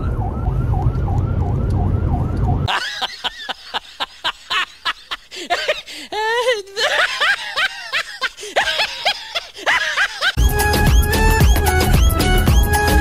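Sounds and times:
siren-like wail: 0.0s - 2.7s
snickering laughter: 2.7s - 10.4s.

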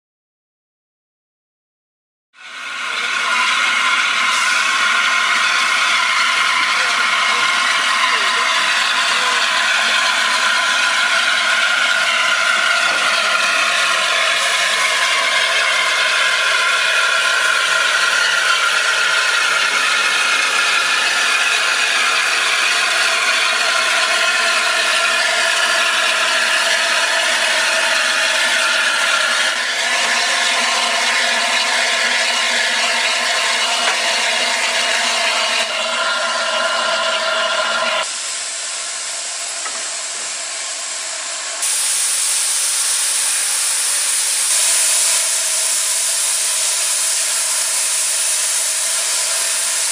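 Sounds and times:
high metallic squeal: 2.4s - 38.1s
steam locomotive rattling past: 2.4s - 49.9s.

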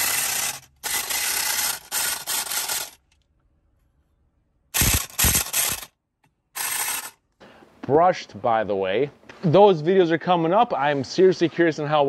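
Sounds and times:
air compressor hissing whir: 0.0s - 3.0s, 4.8s - 5.9s, 6.6s - 7.1s.

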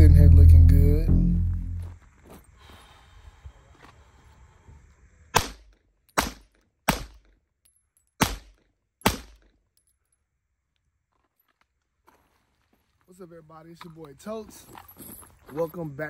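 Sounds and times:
pistol shots with echo: 5.4s - 7.3s, 8.2s - 9.4s.

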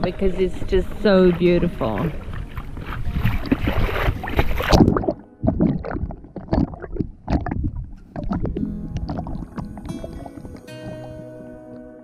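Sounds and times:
water rushing and splashing: 0.0s - 11.3s
muffled underwater gurgling: 0.0s - 11.8s
underwater knocks: 1.9s - 11.3s.

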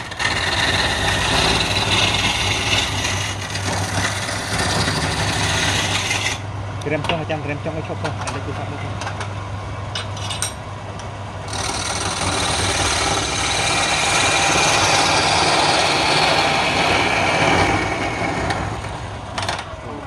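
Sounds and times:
turning tool scraping wood: 0.0s - 6.4s, 11.5s - 19.1s
wood lathe humming: 0.0s - 6.5s, 11.5s - 19.5s.

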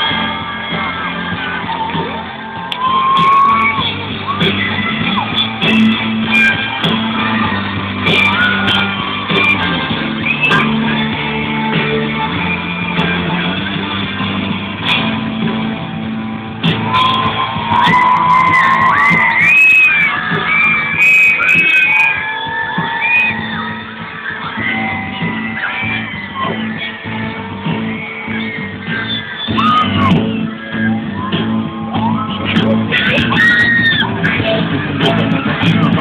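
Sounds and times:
person singing: 0.0s - 15.3s, 17.9s - 36.0s
bass guitar: 0.0s - 36.0s
electric guitar: 0.0s - 36.0s.

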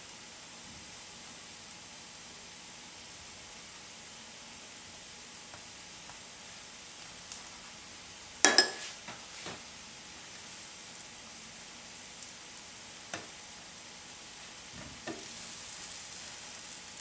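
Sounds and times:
faint cooking hiss: 0.0s - 17.0s
metal spoon clinking on pan: 8.4s - 8.9s.

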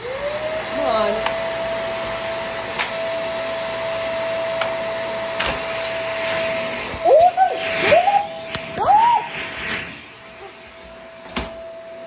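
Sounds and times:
squeals rising and falling: 0.0s - 12.0s
vacuum cleaner running: 0.0s - 12.0s.

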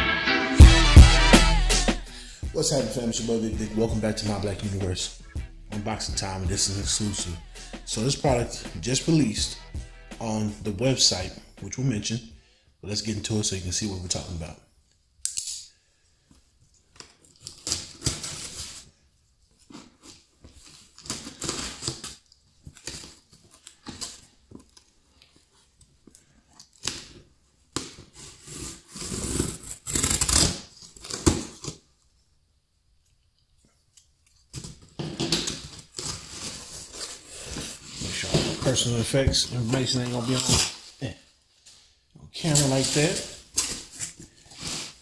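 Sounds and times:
packing tape scraping and ripping: 16.8s - 19.0s, 19.6s - 32.0s, 34.0s - 41.0s, 42.4s - 45.0s
cardboard rustling: 34.5s - 41.6s, 42.4s - 45.0s.

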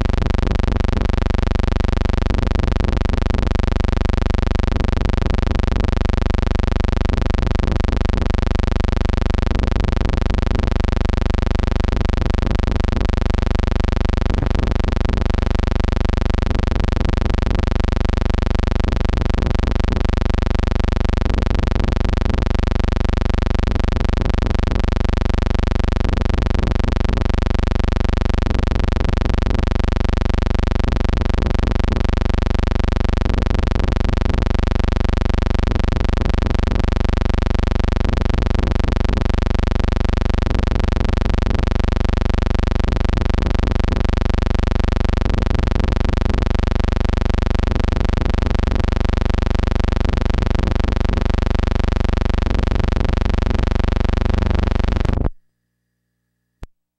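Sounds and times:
steady buzzing hum: 0.0s - 56.7s.

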